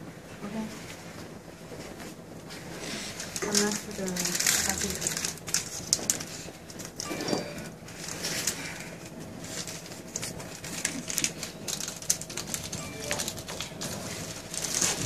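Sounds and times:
packet crackling rustle: 2.9 - 7.0, 7.7 - 15.0.

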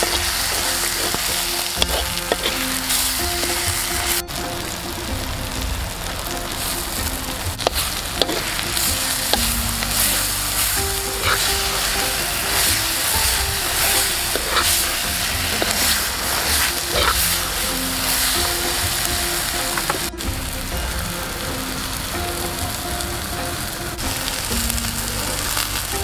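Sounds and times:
food sizzling in a pot: 0.0 - 26.0.

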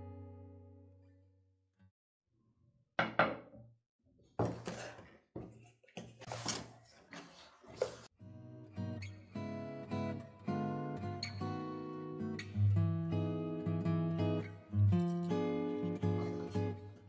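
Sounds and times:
knocks on wooden table: 3.0 - 3.6.

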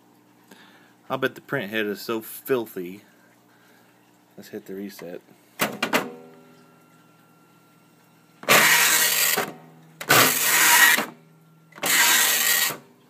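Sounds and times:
faint printer hum: 3.8 - 13.0
printer carriage rushing across: 8.5 - 11.2, 11.8 - 12.8.

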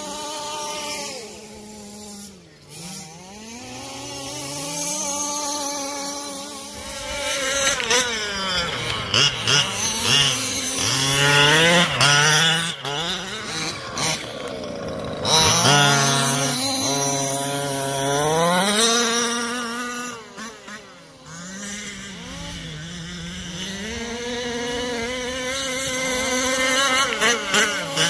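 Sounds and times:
small engines revving: 0.0 - 28.0.

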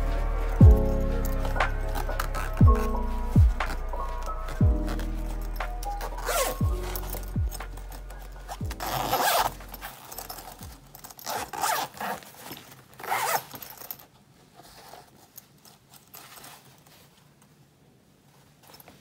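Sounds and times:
fabric rustling: 0.0 - 19.0
zipper on fabric bag: 0.8 - 14.0.

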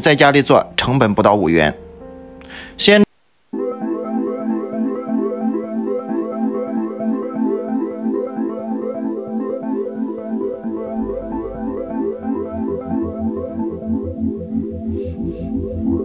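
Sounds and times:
repeated synthesizer notes: 3.5 - 16.0
low bass line: 10.5 - 16.0.

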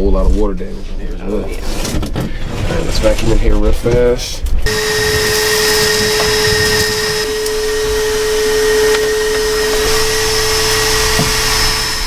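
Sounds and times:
vacuum cleaner running: 4.7 - 12.0.

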